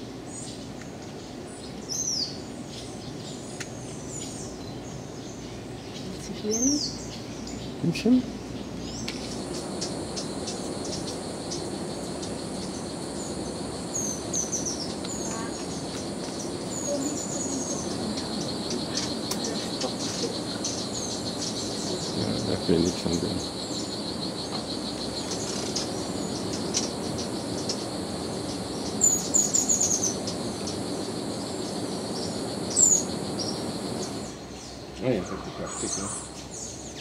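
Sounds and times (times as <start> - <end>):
pulsing insect chorus: 0.0 - 37.0
high bird chirps: 8.6 - 37.0.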